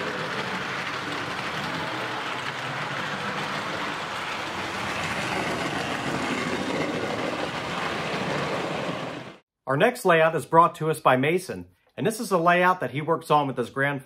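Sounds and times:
model trains running on track: 0.0s - 9.4s.

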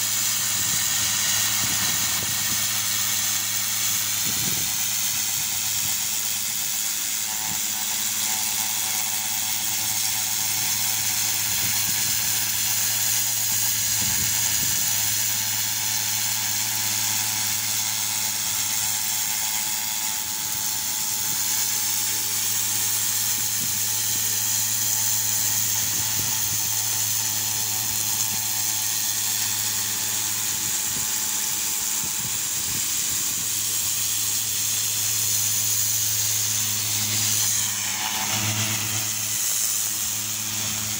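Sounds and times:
pressure washer motor hum: 0.0s - 40.9s
water jet hissing on stone: 0.0s - 40.9s.

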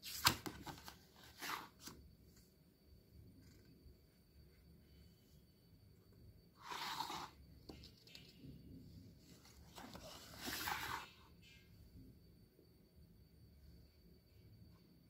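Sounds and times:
book pages turning: 0.0s - 2.0s, 6.6s - 8.2s, 9.4s - 11.2s.

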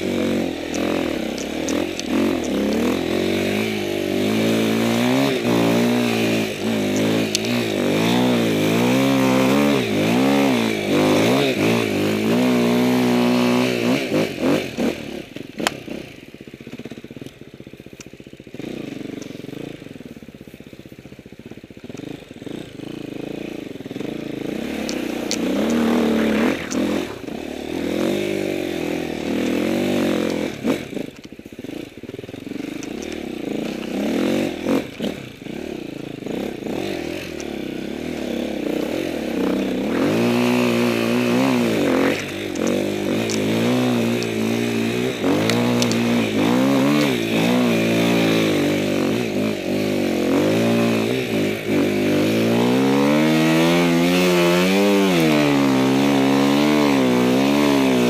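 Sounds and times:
motorcycle engine revving: 0.0s - 58.0s
motorcycle knocks and clatter: 0.6s - 3.6s, 21.4s - 26.0s.

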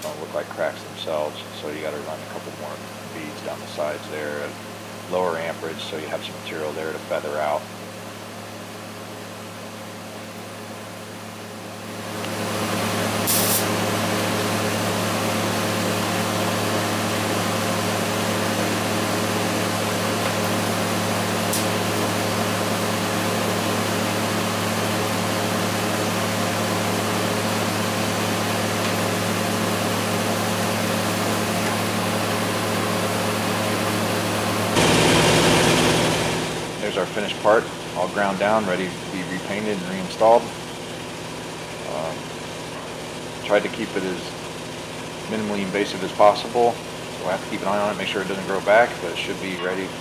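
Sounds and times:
welding arc hum and hiss: 0.0s - 50.0s
welding arc crackle: 13.2s - 13.8s, 18.3s - 24.2s, 33.9s - 37.4s.

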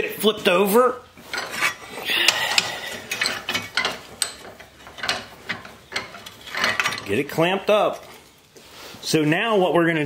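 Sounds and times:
metal tube scraping in vise: 1.2s - 8.8s.

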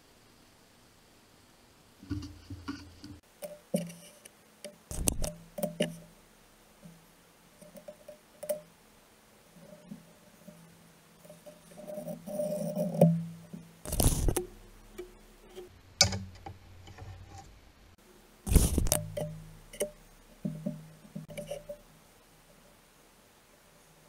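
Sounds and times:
glass scratching rasps: 13.9s - 14.4s, 18.5s - 19.2s.

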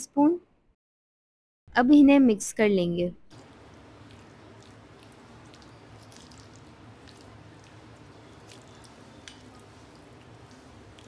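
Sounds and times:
wet squelching of stirred meat: 3.3s - 11.0s.

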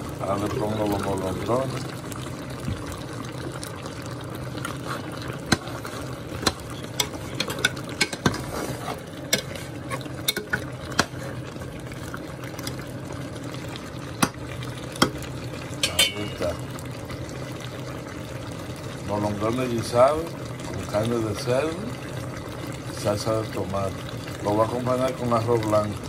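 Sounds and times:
stew simmering: 0.0s - 26.0s
metal spoon clinking against pot: 10.3s - 10.6s, 15.8s - 16.4s.

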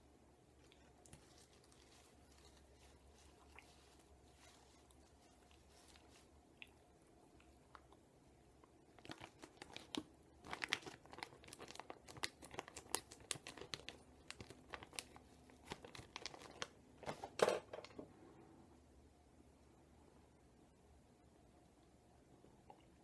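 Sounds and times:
plastic pouch crinkling: 9.0s - 17.4s.

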